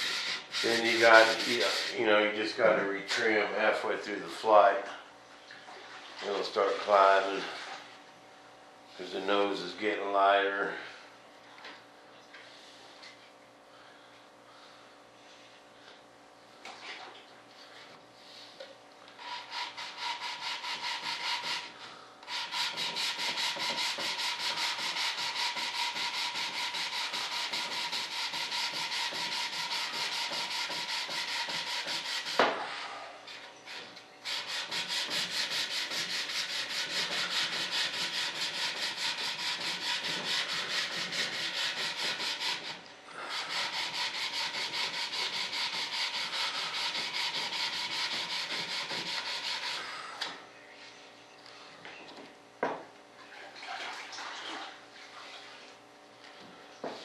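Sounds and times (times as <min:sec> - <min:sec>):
sandpaper block sanding: 0:00.0 - 0:02.1, 0:19.2 - 0:32.4, 0:33.7 - 0:49.8.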